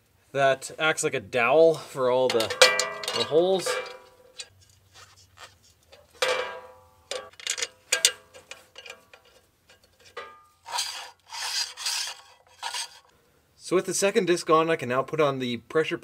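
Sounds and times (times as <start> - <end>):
metal scraping: 2.2 - 13.1
ringing metal clink: 2.3 - 4.5, 6.2 - 9.4, 10.2 - 10.6
metal clicks and taps: 5.9 - 10.4.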